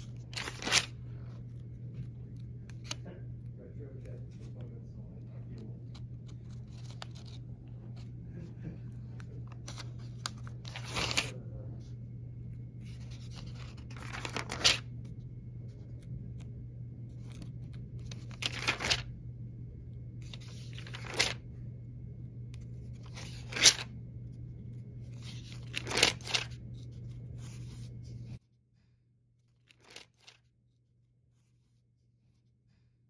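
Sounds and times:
pages being turned: 0.0 - 3.4, 4.0 - 11.4, 12.5 - 19.1, 20.2 - 21.5, 22.5 - 28.4, 29.6 - 30.5
steady low hum: 0.0 - 33.0.

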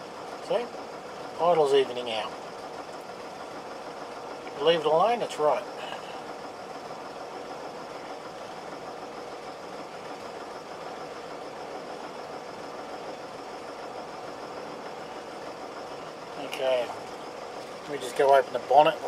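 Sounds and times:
truck engine idling: 0.0 - 19.0.

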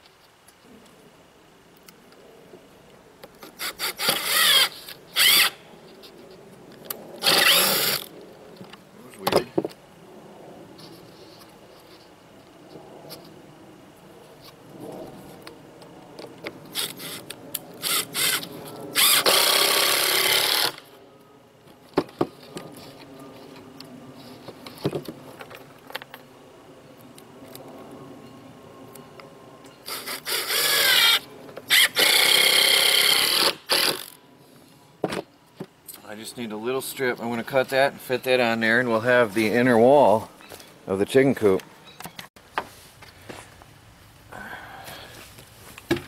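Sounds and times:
cordless drill into wood: 3.6 - 5.6, 7.2 - 8.1, 17.8 - 20.9, 29.9 - 34.2.

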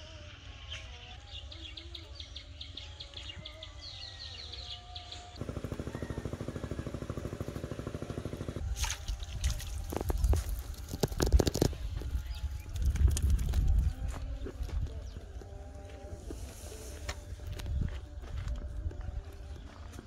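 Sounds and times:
pulsing small motor drone: 5.4 - 8.8
splashing and rustling in water: 8.7 - 10.7
birds chirping: 11.4 - 20.0.

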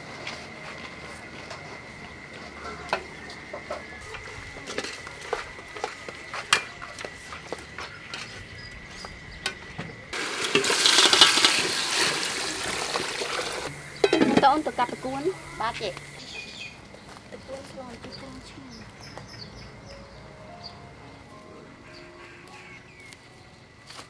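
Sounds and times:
soup bubbling at a boil: 10.2 - 14.6
ladle knocking against pot: 14.0 - 14.5.

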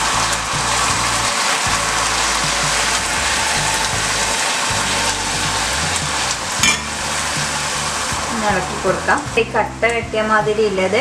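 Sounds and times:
water pouring: 0.0 - 9.3
sugar boiling and sizzling: 0.0 - 11.0.

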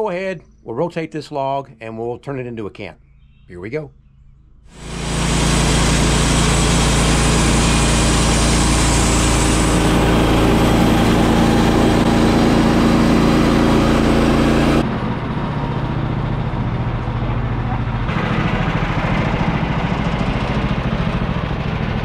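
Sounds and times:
saw blade cutting wood: 4.7 - 14.8
engine running under load: 4.7 - 22.0.

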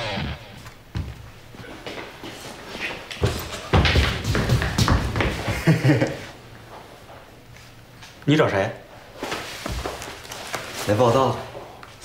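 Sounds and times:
music: 0.0 - 0.7.

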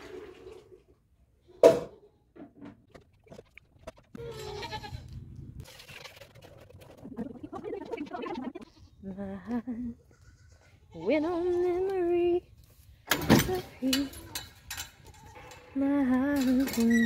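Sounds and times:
goat bleating: 4.2 - 5.2, 8.5 - 9.2, 10.0 - 11.6.

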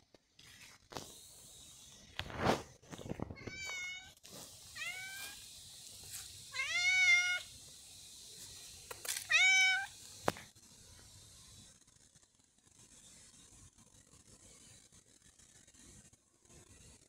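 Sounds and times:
cat meowing: 3.4 - 4.2, 4.8 - 5.4, 6.5 - 7.5, 9.3 - 10.0.

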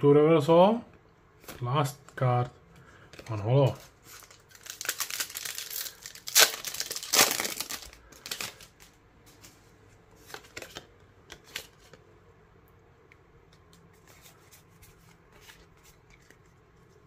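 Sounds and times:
foil wrapper crinkling and tearing: 3.9 - 8.9.

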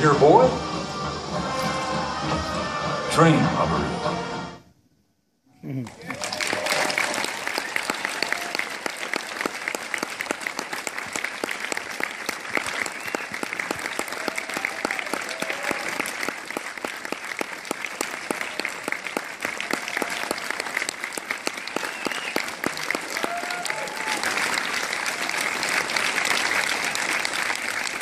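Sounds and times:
large audience applauding: 5.8 - 28.0.

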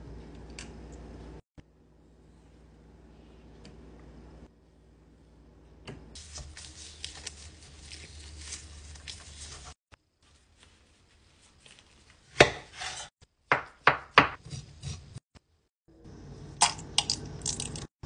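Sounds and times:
knife chopping on wooden board: 12.4 - 15.0.

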